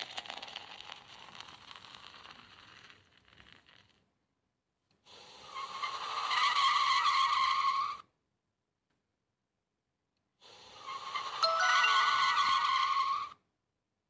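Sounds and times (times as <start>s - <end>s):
sustained high screech: 11.4s - 13.4s.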